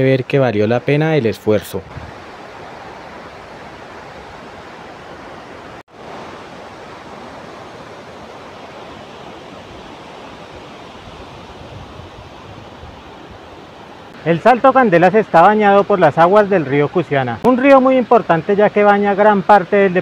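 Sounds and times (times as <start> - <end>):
waterfall rushing: 1.8 - 20.0.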